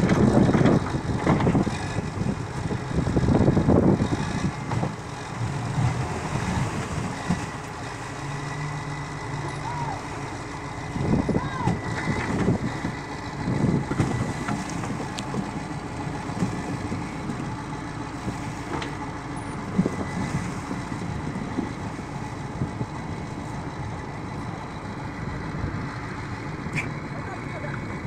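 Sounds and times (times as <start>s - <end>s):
wheel loader diesel engine running: 0.0s - 28.0s.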